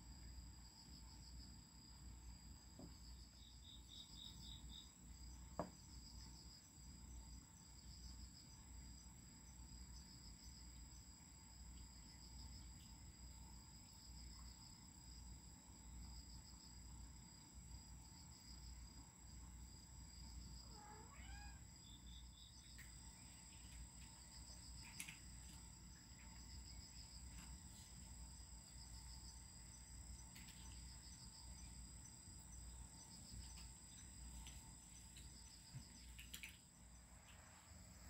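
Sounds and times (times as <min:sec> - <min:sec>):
crickets trilling: 0:00.0 - 0:38.0
pulsing insect chirp: 0:00.0 - 0:38.0
faint clicks: 0:36.0 - 0:36.7.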